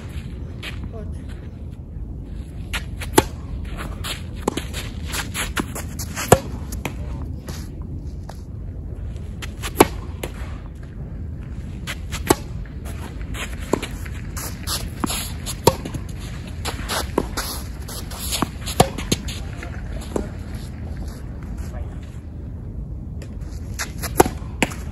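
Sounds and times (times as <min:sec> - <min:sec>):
low background rumble: 0:00.0 - 0:24.9
racket hitting tennis ball: 0:02.7 - 0:07.2, 0:09.4 - 0:10.6, 0:11.8 - 0:20.4, 0:23.2 - 0:24.9.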